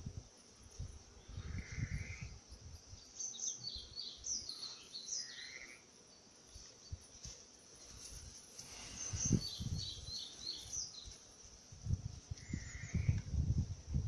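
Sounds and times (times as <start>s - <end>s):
bird chirping: 1.2s - 7.0s, 8.9s - 11.2s
rustling in grass: 6.3s - 14.0s.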